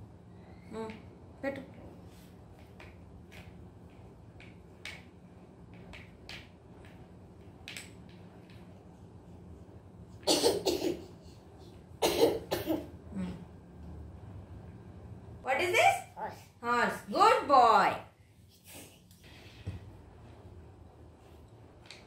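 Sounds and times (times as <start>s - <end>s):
wooden puzzle pieces tapping: 2.5s - 8.8s
person coughing: 10.2s - 11.1s, 12.0s - 12.9s.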